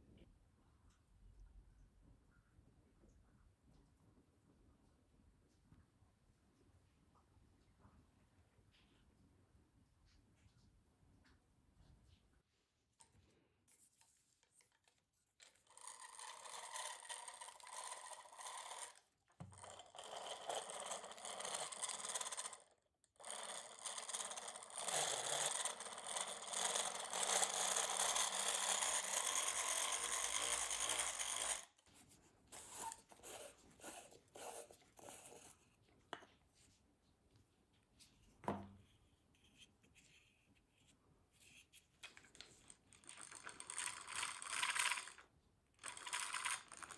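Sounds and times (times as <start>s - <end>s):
hand-crank gear mechanism whirring: 15.6s - 31.7s, 42.9s - 45.2s, 45.8s - 46.9s.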